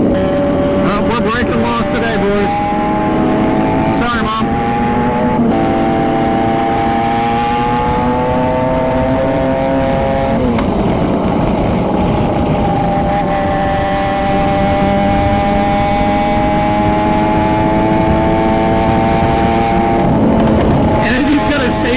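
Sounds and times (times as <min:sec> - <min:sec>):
wind rush: 0:00.0 - 0:21.9
motorcycle engine pulling: 0:13.7 - 0:21.9.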